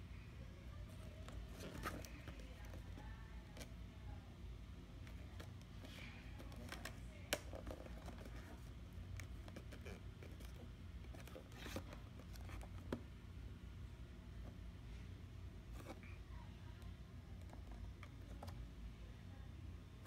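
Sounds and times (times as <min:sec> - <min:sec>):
cardboard box rustling: 0:01.3 - 0:02.8.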